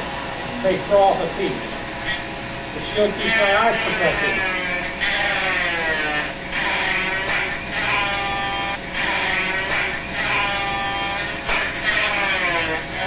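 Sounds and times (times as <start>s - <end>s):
rotary carving tool whining: 0.0s - 13.0s.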